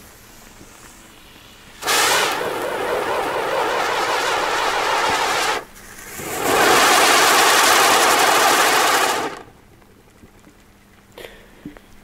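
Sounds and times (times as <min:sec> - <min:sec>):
firework sparks hissing: 0:00.0 - 0:09.5.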